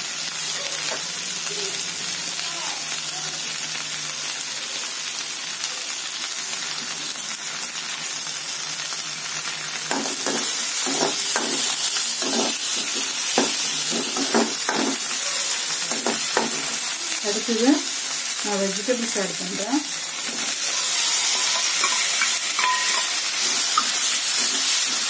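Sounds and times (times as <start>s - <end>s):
onions sizzling in a pan: 0.0s - 25.0s
spatula scraping a pan: 9.9s - 15.1s, 20.2s - 25.0s.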